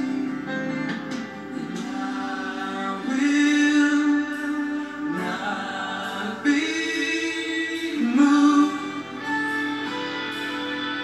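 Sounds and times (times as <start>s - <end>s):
live band music: 0.0s - 11.0s
person singing long notes: 1.5s - 9.8s.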